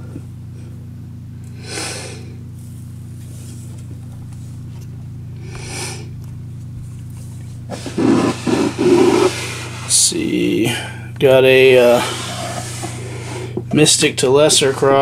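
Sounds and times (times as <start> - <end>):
steady low hum: 0.0 - 15.0
soft hissing puffs: 5.4 - 6.1, 7.2 - 11.0, 11.7 - 13.6.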